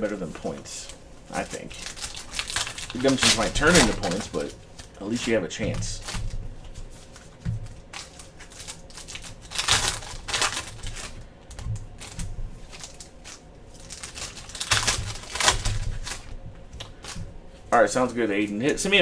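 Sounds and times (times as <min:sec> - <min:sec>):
foil wrappers crinkling and tearing: 0:00.4 - 0:19.0.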